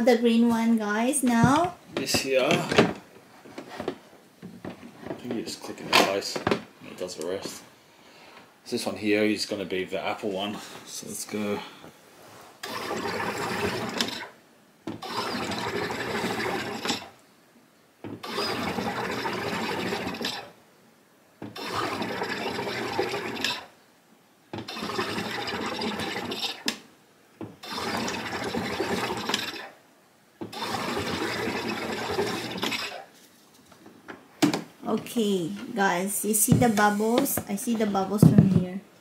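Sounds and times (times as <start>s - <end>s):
soda maker gas hissing and bubbling: 12.6s - 14.4s, 15.0s - 17.1s, 18.2s - 20.5s, 21.4s - 23.7s, 24.6s - 26.8s, 27.6s - 29.7s, 30.4s - 33.1s, 36.4s - 37.4s.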